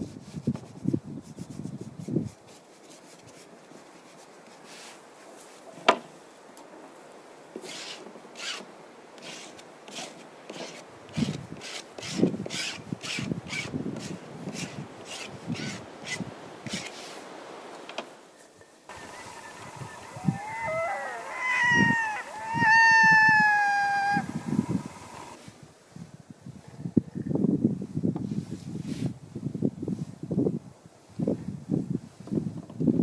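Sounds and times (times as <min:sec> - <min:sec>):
scratchy paint strokes on canvas: 0:00.0 - 0:05.6, 0:09.2 - 0:17.3.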